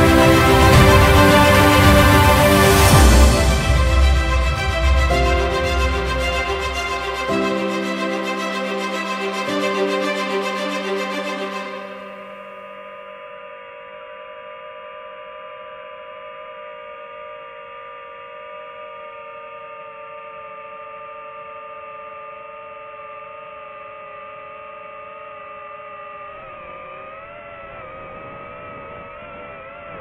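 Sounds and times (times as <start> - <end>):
drone propeller motors whining: 13.4 - 30.0.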